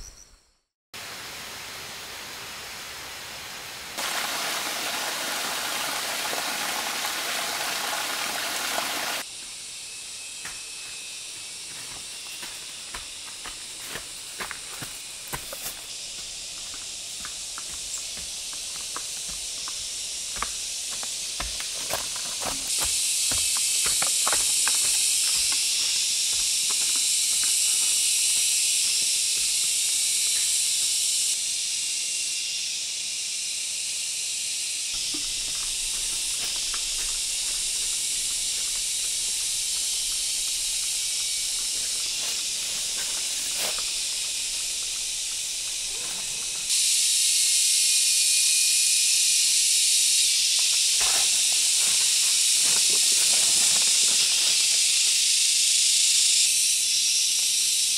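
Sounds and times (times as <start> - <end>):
high-pitched insect chorus: 4.0 - 57.9
footsteps crunching on leaf litter: 10.8 - 31.0, 35.0 - 46.7, 50.7 - 55.2.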